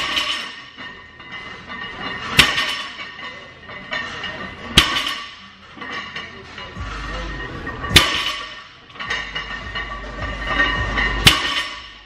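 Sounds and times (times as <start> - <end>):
barbell plates clanking down: 0.0 - 12.0.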